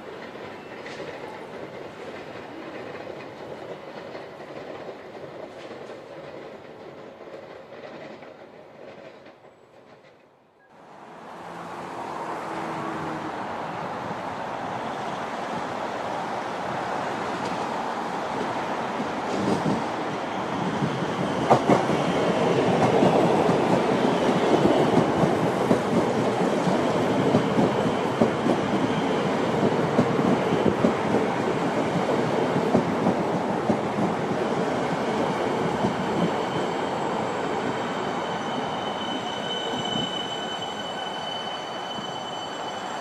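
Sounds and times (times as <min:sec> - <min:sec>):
train wheels rumbling and clattering: 0:00.0 - 0:10.3, 0:17.3 - 0:41.0
high whining train tones: 0:10.8 - 0:43.0.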